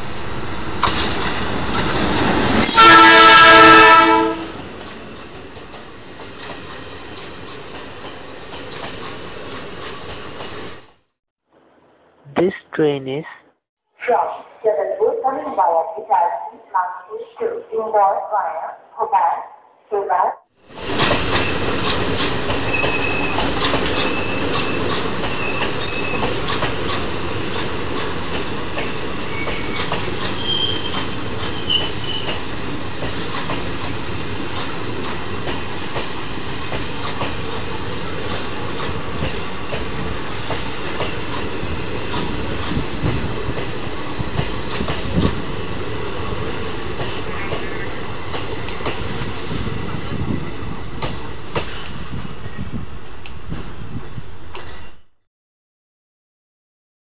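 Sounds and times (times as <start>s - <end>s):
high-pitched wheel squeals: 28.9s - 33.1s.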